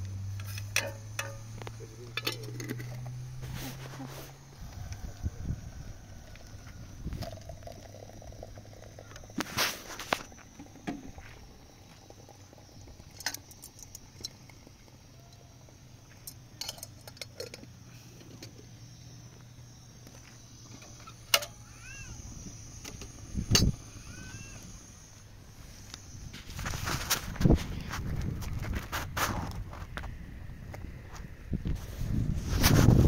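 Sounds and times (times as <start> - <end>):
metal kettle clinking: 0.4 - 3.0, 16.3 - 17.6.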